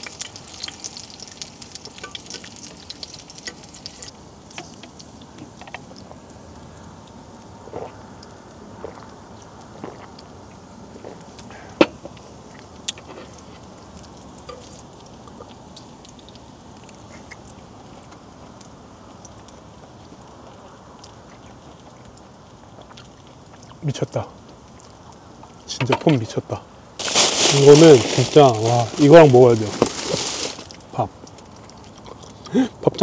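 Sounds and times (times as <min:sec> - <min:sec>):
meat sizzling on grill pan: 0:00.0 - 0:06.2, 0:27.0 - 0:30.8.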